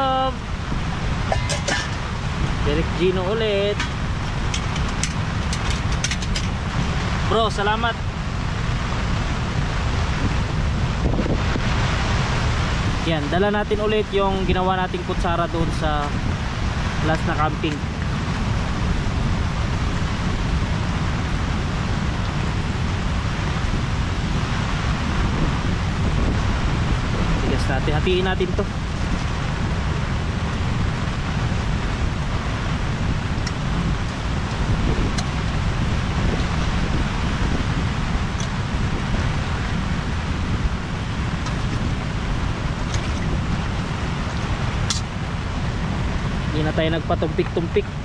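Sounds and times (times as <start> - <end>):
heavy low rumble: 0.0 - 48.0
rain: 0.0 - 48.0
sea waves rushing: 0.0 - 48.0
storm wind: 0.0 - 48.0.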